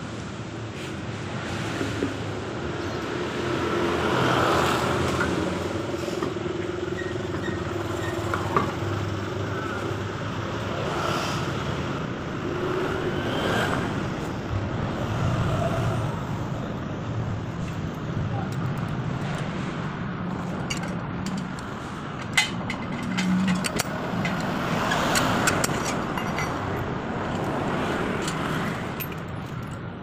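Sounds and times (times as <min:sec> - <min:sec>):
road traffic noise: 0:00.0 - 0:30.0.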